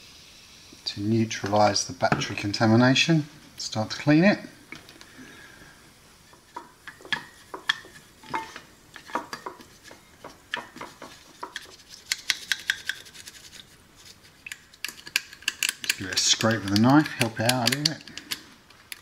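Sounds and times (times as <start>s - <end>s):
paintbrush scratching: 9.6s - 14.5s.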